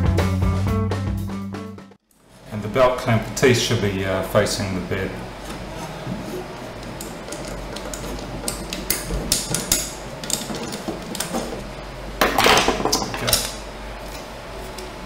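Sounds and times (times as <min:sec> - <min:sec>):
metal plate clicks and knocks: 0:07.0 - 0:11.6.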